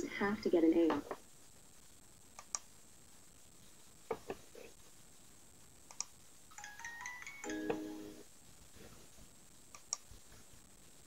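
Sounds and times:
low steady hiss: 0.0 - 11.0
faint clicks: 2.4 - 2.7, 5.9 - 6.2, 9.7 - 10.1.

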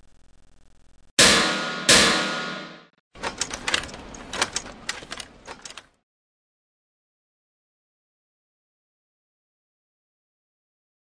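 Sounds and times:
heavy metallic clunks ringing: 1.2 - 2.9.

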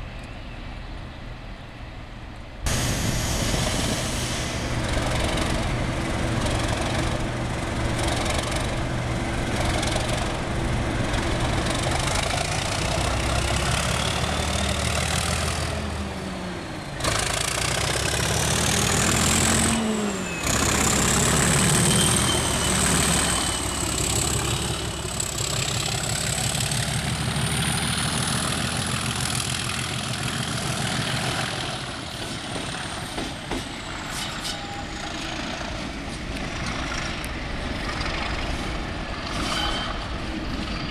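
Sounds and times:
diesel locomotive engine: 0.0 - 40.9.

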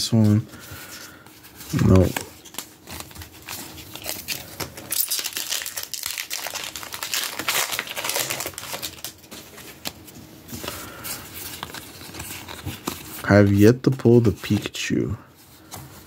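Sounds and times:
foil wrapper crinkling: 1.7 - 10.0.

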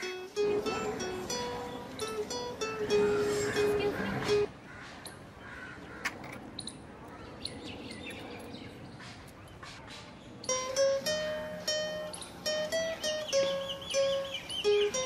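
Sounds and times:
plucked string melody: 0.0 - 4.5, 10.4 - 15.0.

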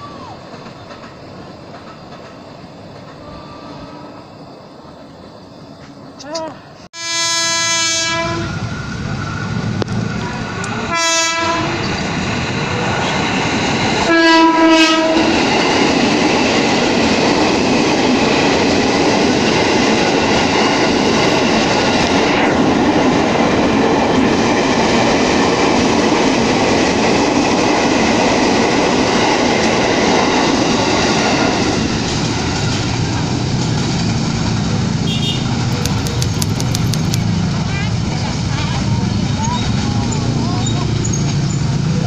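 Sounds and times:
train wheels clattering on rails: 0.0 - 3.5, 11.4 - 42.0
train horn blasts: 3.2 - 4.4, 7.0 - 8.6, 10.8 - 11.9, 14.0 - 15.5, 35.0 - 35.7.

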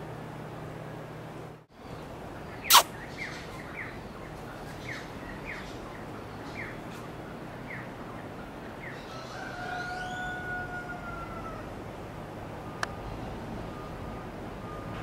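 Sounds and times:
outdoor hiss: 0.0 - 3.4
bird chirping: 1.7 - 9.4
loud sharp call or click: 2.7 - 2.9.

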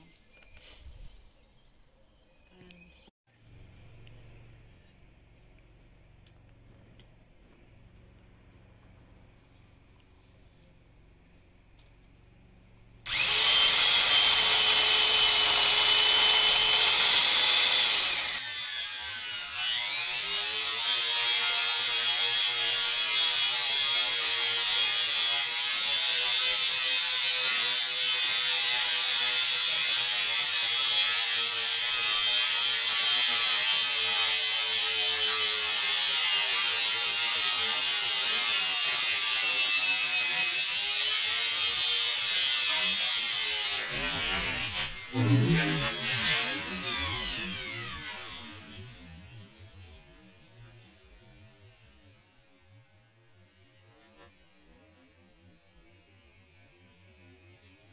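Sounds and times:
electric chainsaw cutting branch: 13.0 - 51.4.

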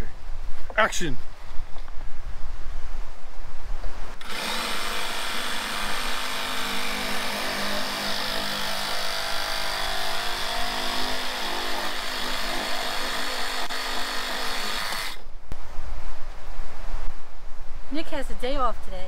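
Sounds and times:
reciprocating saw cutting pipe: 4.2 - 15.2.

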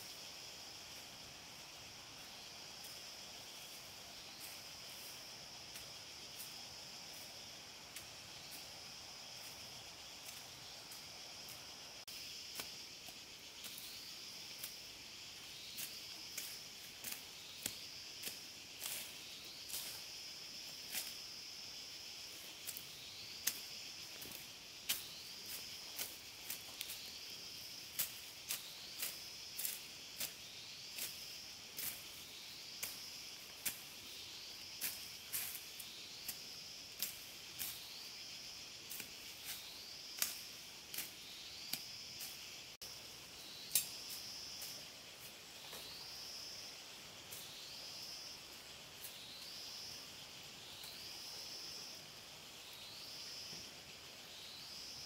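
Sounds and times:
insects shrilling: 0.0 - 55.0.

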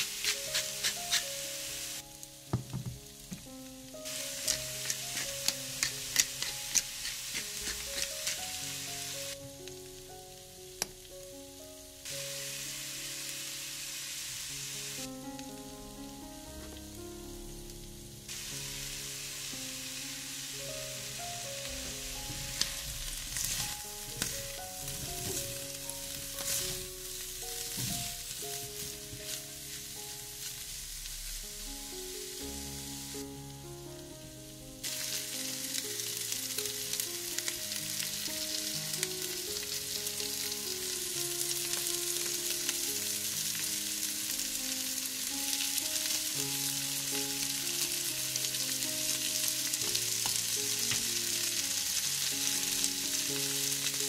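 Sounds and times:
food sizzling in oil: 0.0 - 54.0
soft melodic music: 0.0 - 54.0
utensil tapping pan: 2.5 - 3.5, 4.1 - 8.6.

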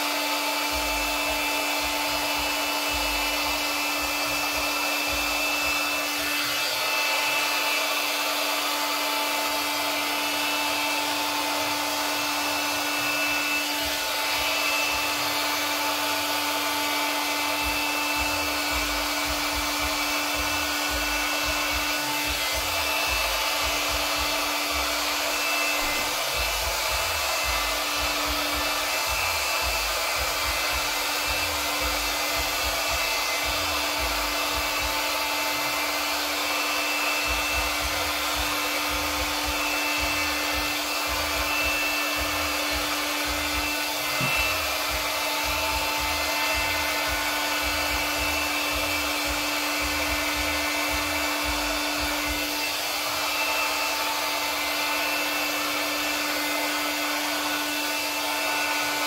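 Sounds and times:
hot-air blower rushing and humming: 0.0 - 59.0.

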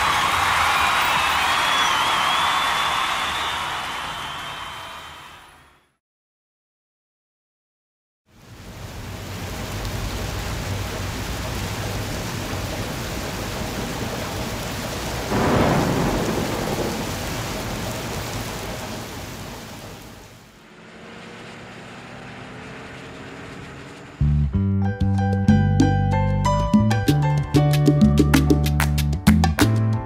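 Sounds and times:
steady rain: 0.0 - 5.0, 8.3 - 24.2
thunder rolling: 11.3 - 20.6.

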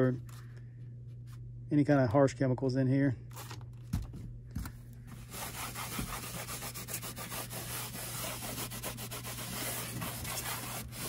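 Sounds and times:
cloth rag wiping foam: 5.2 - 11.0.

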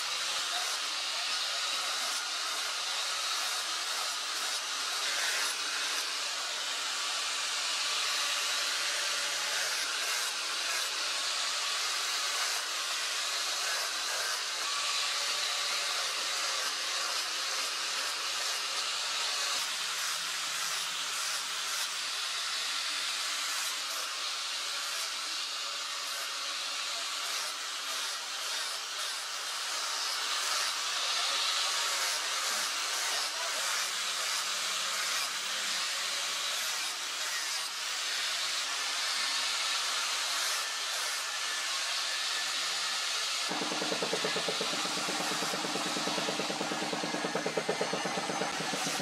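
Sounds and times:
angle grinder grinding steel: 43.5 - 49.0
faint motor whine: 43.5 - 49.0.

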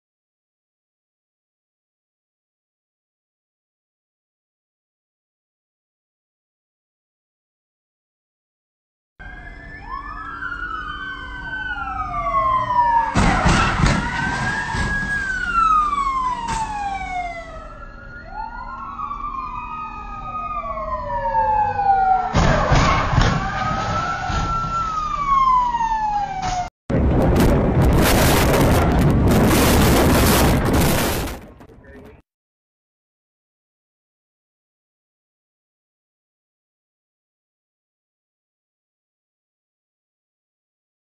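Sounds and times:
police sirens wailing: 9.2 - 32.1
wind and road noise: 9.2 - 32.2
vehicles crashing: 12.1 - 17.6, 21.5 - 32.2.

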